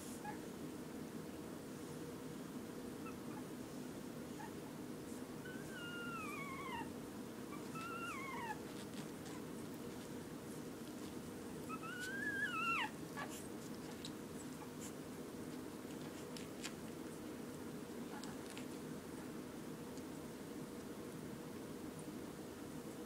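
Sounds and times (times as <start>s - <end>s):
low room hum: 0.0s - 23.0s
puppies whimpering: 5.5s - 6.9s, 7.5s - 8.6s, 11.6s - 13.4s.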